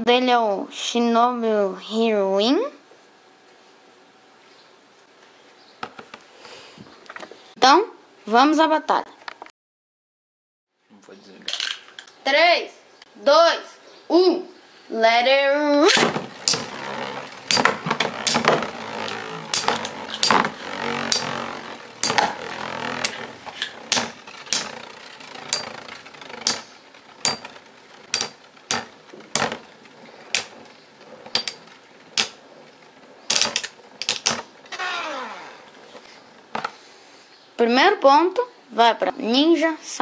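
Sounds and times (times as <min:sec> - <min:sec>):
plastic clacks of tops colliding: 0:15.9 - 0:30.7, 0:33.3 - 0:34.5
spinning tops whirring: 0:15.9 - 0:35.8.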